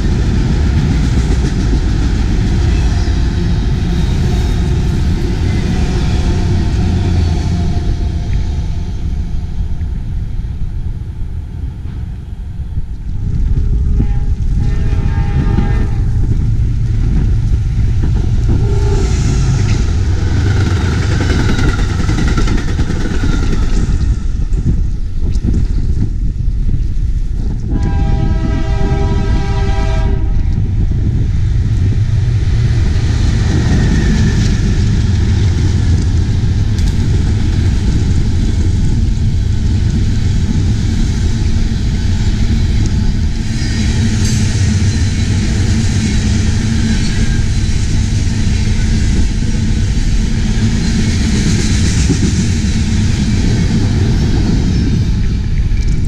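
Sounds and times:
train wheels rumbling on rail: 0:00.0 - 0:56.0
train horn chord: 0:13.8 - 0:16.4, 0:18.5 - 0:19.2, 0:27.7 - 0:30.6.

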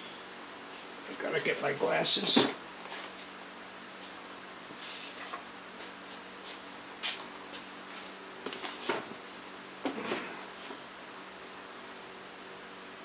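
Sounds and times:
faint steady hum: 0:00.0 - 0:13.0
rustles and knocks of handling: 0:05.2 - 0:09.2.

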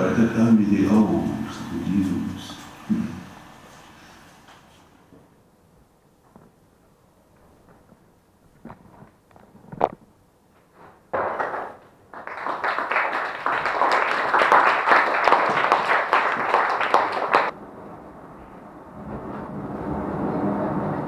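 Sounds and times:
audience applause: 0:11.2 - 0:17.5.

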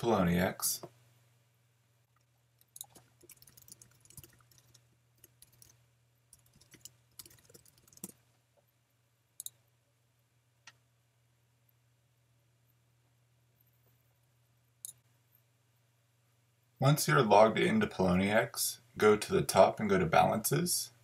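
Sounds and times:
low steady hum: 0:00.0 - 0:21.0
computer keyboard typing: 0:02.6 - 0:08.2.

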